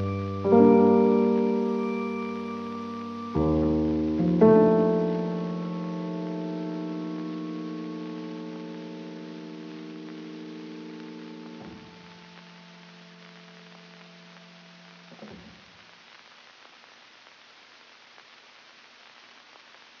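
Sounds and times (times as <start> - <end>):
held music chord: 0.0 - 11.6
low steady hiss: 0.0 - 20.0.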